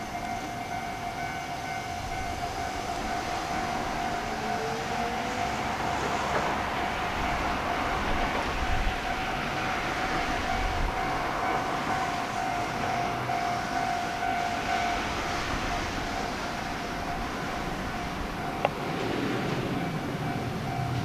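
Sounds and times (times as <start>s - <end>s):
electric train rumbling on rails: 0.0s - 21.0s.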